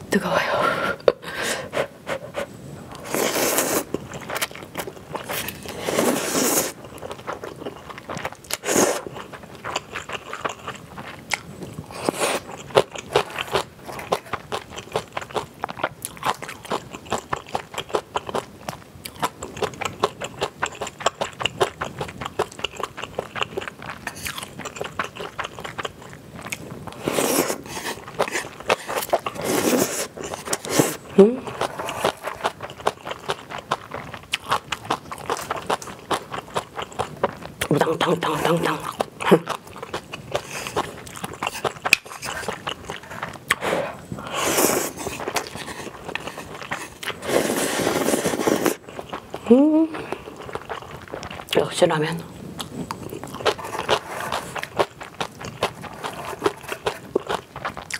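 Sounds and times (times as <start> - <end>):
person slurping noodles: 1.6 - 4.0, 5.2 - 6.8, 8.5 - 9.1, 11.9 - 12.5, 26.9 - 32.6, 40.4 - 49.0
wet chewing with mouth clicks: 2.1 - 51.7, 52.5 - 57.9.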